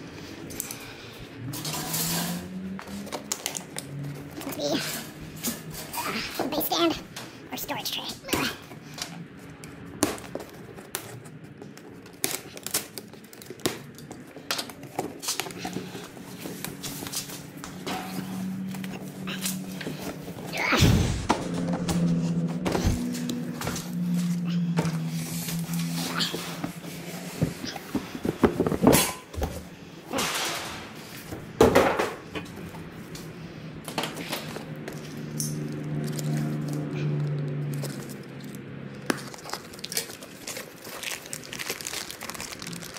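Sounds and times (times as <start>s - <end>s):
tools and packaging clicking: 0.4s - 0.9s, 1.5s - 6.4s, 8.7s - 20.5s, 33.8s - 42.9s
cardboard rustling and scraping: 10.2s - 29.7s.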